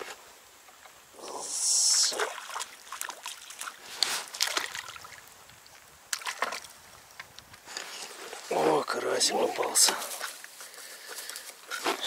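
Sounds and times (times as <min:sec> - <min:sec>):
fish splashing at surface: 0:02.1 - 0:05.3, 0:06.1 - 0:06.8.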